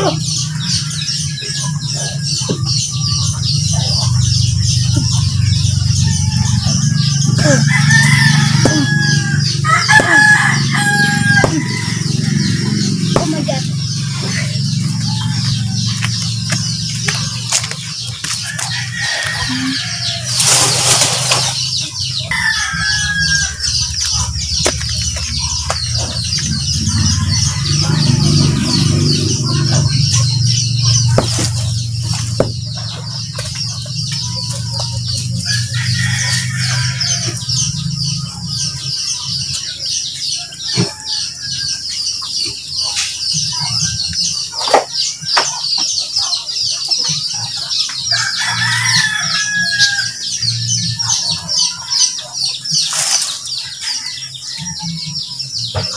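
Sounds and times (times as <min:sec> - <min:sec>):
rooster crowing: 0:05.6 - 0:13.3, 0:18.4 - 0:20.6, 0:22.1 - 0:29.7, 0:34.8 - 0:38.0, 0:40.2 - 0:42.1, 0:48.0 - 0:51.4, 0:53.6 - 0:55.6.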